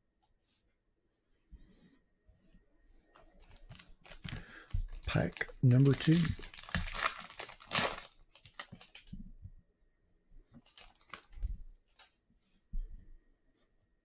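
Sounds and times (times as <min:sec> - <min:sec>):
foil pack tearing and crinkling: 0:03.6 - 0:09.0.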